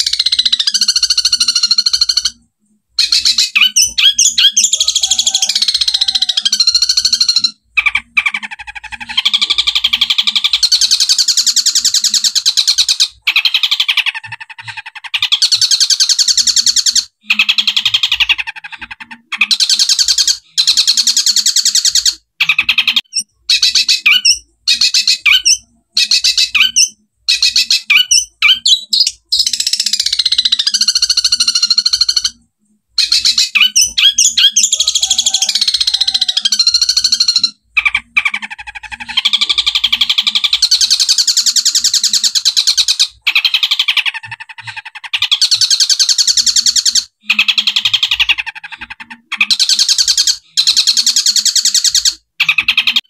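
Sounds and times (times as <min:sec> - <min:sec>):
shrike singing rapid chattering: 0:00.0 - 0:53.0.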